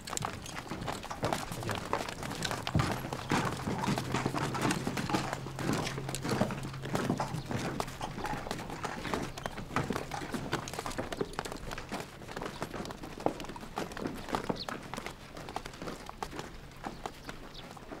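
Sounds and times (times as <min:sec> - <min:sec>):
low steady hum: 0:00.0 - 0:12.2
boots footsteps on dirt: 0:00.0 - 0:18.0.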